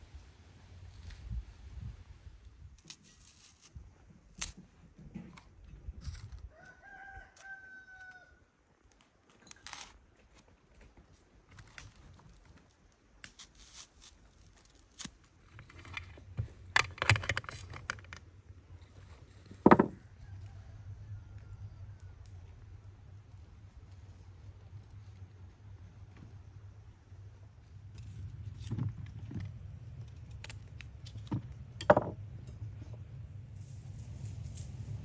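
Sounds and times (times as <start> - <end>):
rooster crowing: 6.5 - 8.4.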